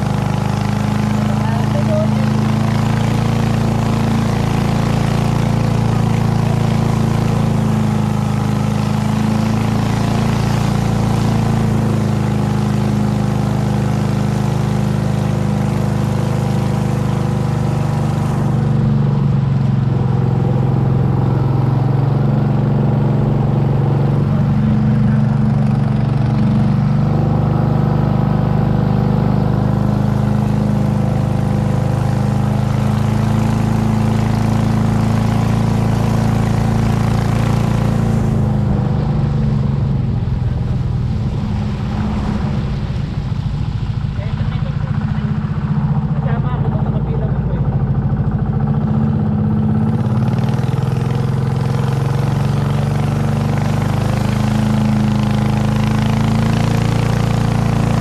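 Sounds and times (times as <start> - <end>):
water and wind hiss: 0.0 - 27.2, 29.8 - 46.5
motor boat engine running: 0.0 - 58.0.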